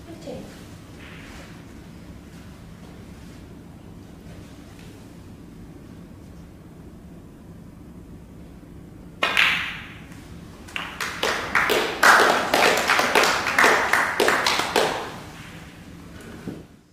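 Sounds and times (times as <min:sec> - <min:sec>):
snooker balls clacking: 0:09.2 - 0:15.8
people applauding: 0:10.6 - 0:15.4.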